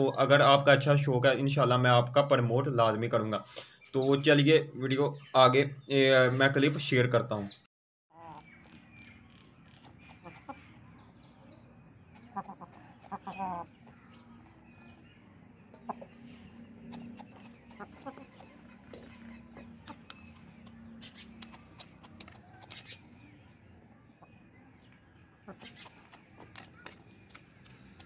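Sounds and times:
beaks pecking grain from metal bowl: 0:09.7 - 0:10.8, 0:12.1 - 0:14.6, 0:16.8 - 0:23.4, 0:25.5 - 0:28.0
chickens clucking: 0:09.7 - 0:10.8, 0:12.1 - 0:15.0, 0:15.6 - 0:23.1, 0:25.4 - 0:28.0.

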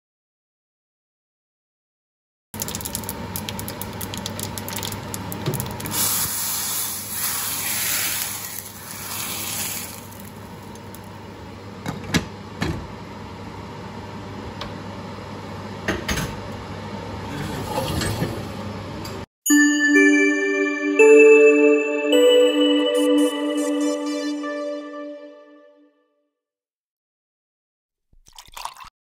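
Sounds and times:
mustard seeds crackling in oil: 0:02.6 - 0:06.0
loud sizzle: 0:02.6 - 0:11.3.

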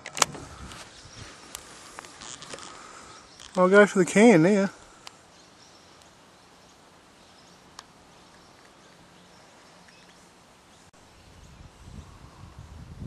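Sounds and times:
faint bird chirps: 0:04.8 - 0:12.9
low gusty rumble: 0:11.2 - 0:13.0.

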